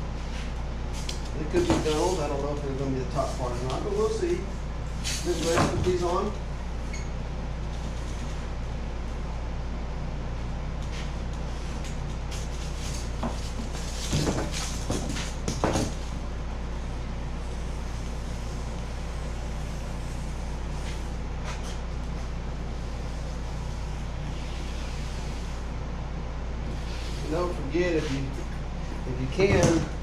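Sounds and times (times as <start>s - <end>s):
steady low hum: 0.0s - 30.0s.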